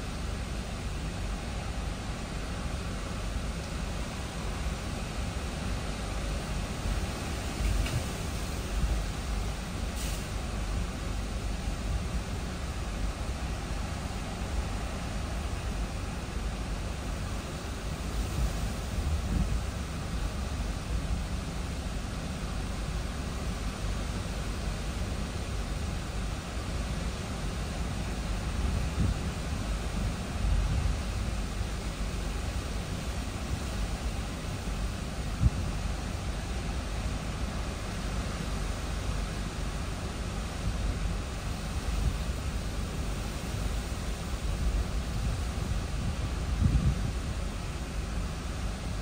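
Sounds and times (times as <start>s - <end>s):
gusts rumbling on car: 13.2s - 21.7s, 28.2s - 36.5s, 40.6s - 49.0s.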